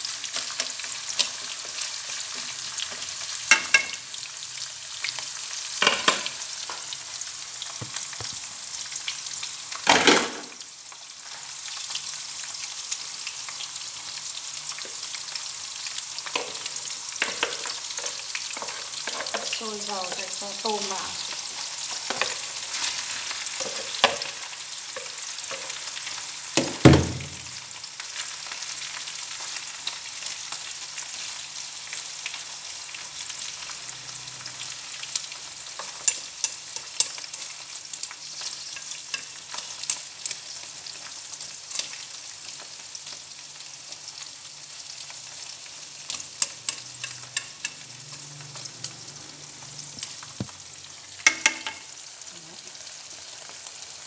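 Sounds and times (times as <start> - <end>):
shrimp sizzling in hot oil: 0.0 - 54.0
loud knock: 26.6 - 27.4.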